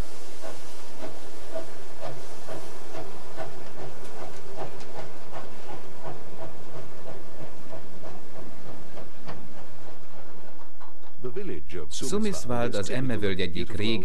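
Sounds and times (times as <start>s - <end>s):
steam hissing: 0.0s - 11.1s
steam locomotive chuffing: 0.0s - 14.0s.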